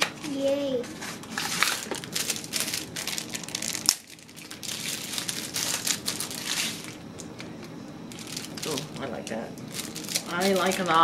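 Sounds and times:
packaging crinkling and rustling: 1.3s - 11.0s.

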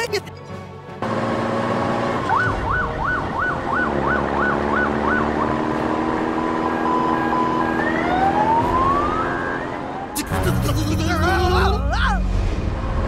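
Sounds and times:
police siren: 2.2s - 10.6s.

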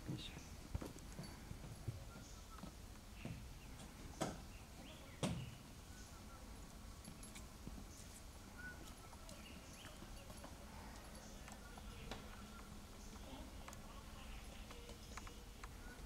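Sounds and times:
faint high chirps: 4.8s - 16.0s.

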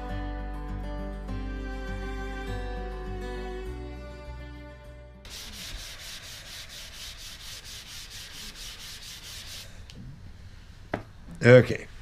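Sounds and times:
background music: 0.0s - 5.4s
sandpaper rubbing on wood: 5.3s - 9.7s.

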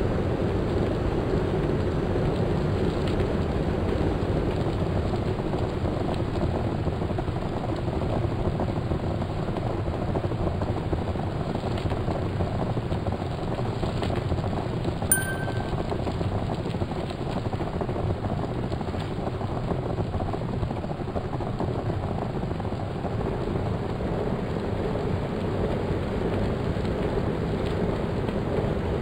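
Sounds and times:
brief high beep: 15.1s - 15.9s
bicycle rolling noise: 16.9s - 29.0s.

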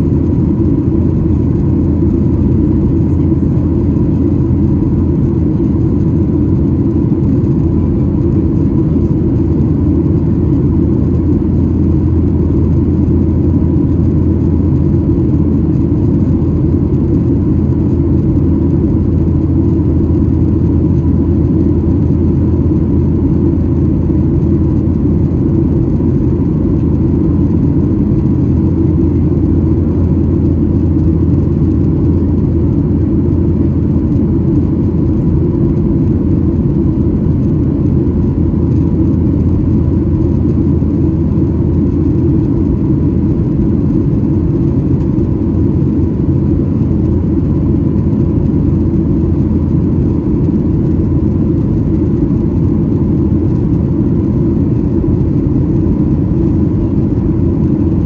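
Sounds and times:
airplane cabin engine drone: 0.0s - 58.0s
faint steady whine: 0.0s - 58.0s.

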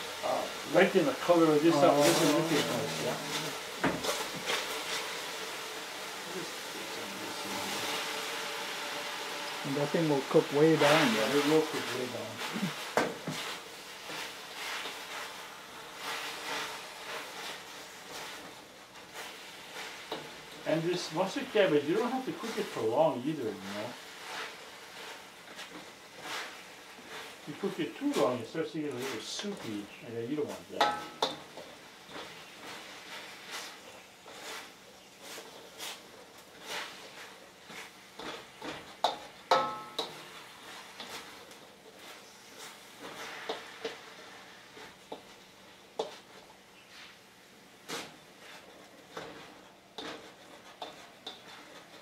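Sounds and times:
sizzling in a steel wok: 0.0s - 52.0s
spatula scraping wok: 0.0s - 52.0s
metallic knocks on wok: 30.8s - 31.3s, 39.5s - 40.1s.

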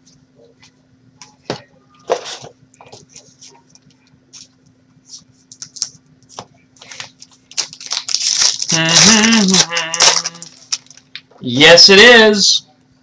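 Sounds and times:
cards crinkling and rustling: 5.4s - 11.2s
wrapper crinkling: 5.5s - 11.2s
short hummed voice: 8.7s - 10.6s.

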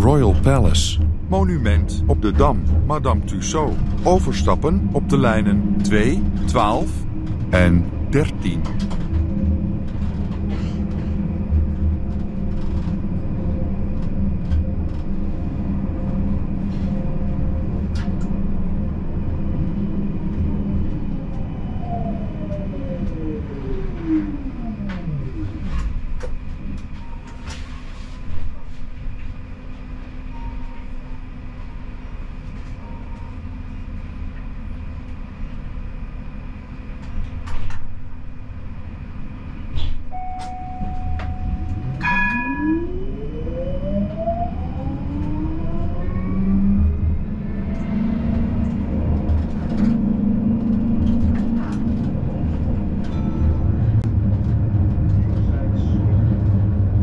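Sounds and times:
tram motor hum and whine: 0.0s - 57.0s
short beeps: 40.1s - 42.9s.

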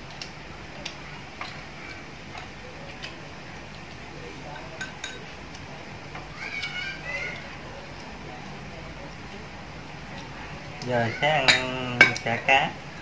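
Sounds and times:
chopsticks tapping porcelain bowls: 11.3s - 12.4s.

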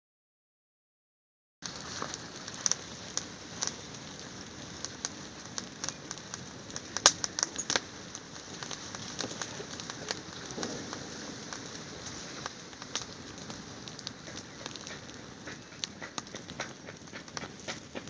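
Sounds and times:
fire crackling: 1.6s - 18.0s
sharp pops of fire: 1.6s - 18.0s.

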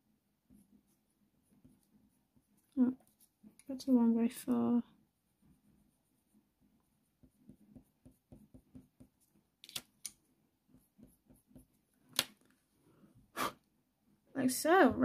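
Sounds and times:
pencil strokes on paper: 0.3s - 4.3s, 5.3s - 9.5s, 10.3s - 11.9s.

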